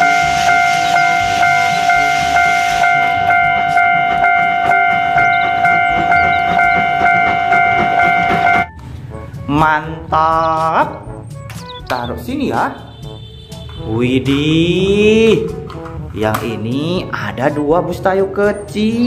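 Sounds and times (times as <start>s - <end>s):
steam hissing: 0.0s - 3.0s
steam locomotive chuffing: 0.0s - 8.7s
steam locomotive whistle: 0.0s - 8.7s.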